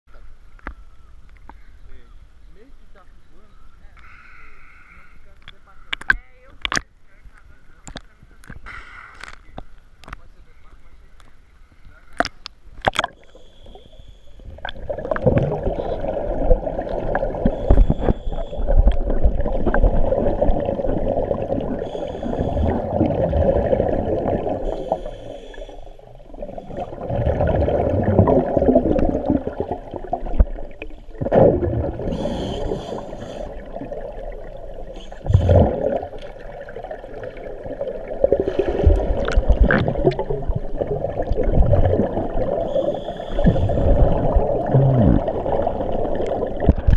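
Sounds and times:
underwater air bubbling: 11.7 - 46.9.

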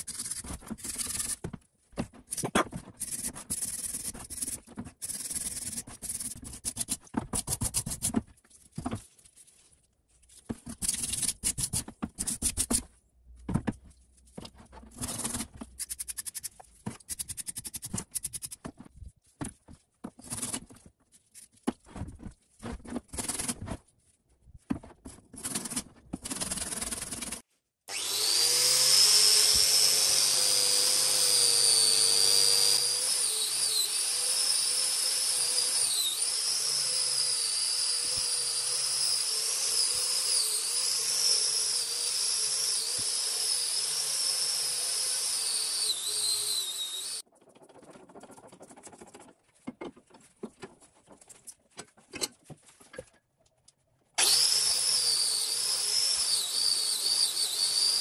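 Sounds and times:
angle grinder whining: 27.9 - 47.2, 54.2 - 58.0.

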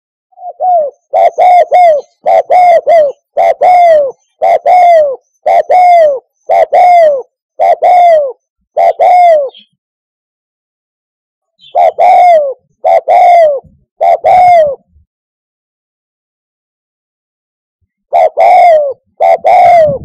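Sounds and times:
dove cooing: 0.4 - 9.8, 11.6 - 15.0, 18.1 - 20.0.

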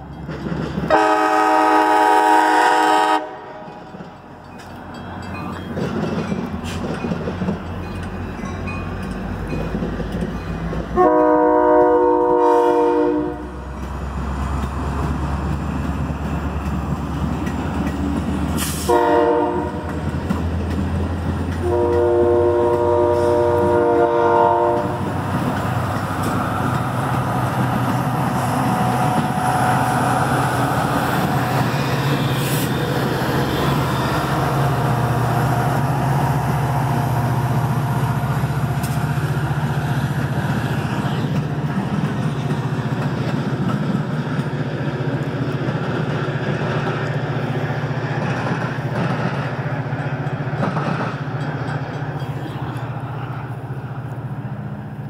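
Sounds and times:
passing train rumbling: 0.0 - 55.0
train horn blasts: 0.9 - 3.7, 11.0 - 13.6, 18.8 - 20.0, 21.6 - 25.1.

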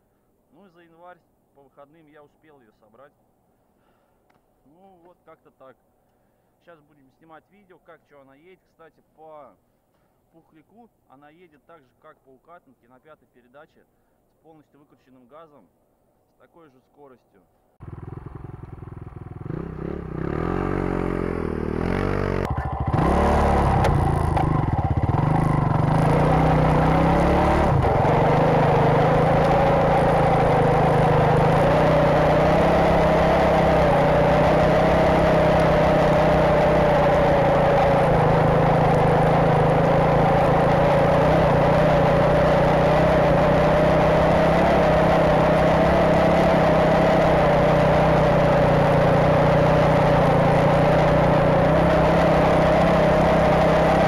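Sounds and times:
motorcycle engine revving: 17.8 - 54.0
track churning through snow: 20.0 - 54.0.

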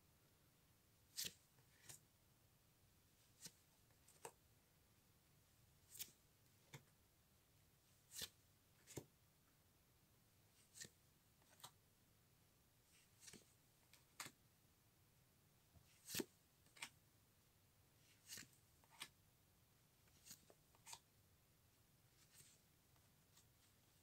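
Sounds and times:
cards sliding off a stack: 18.2 - 19.1.

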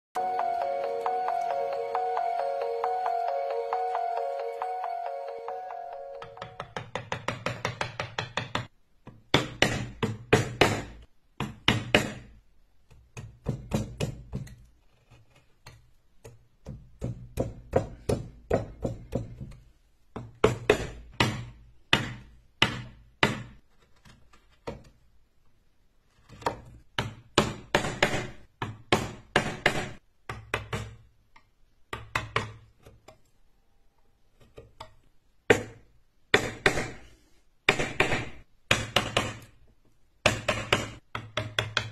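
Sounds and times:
mallet knocking carving gouge: 6.3 - 24.9, 26.3 - 33.2, 34.3 - 37.1, 37.7 - 39.6, 40.2 - 41.9.

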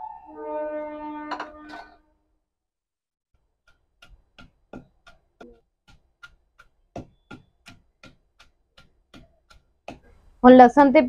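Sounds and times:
wooden pestle pounding in mortar: 3.6 - 10.4.

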